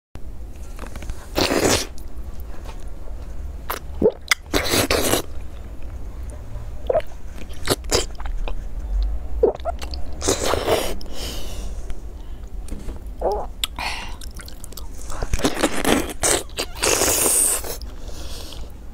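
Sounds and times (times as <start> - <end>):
biting and chewing food: 3.7 - 11.1, 13.2 - 18.7.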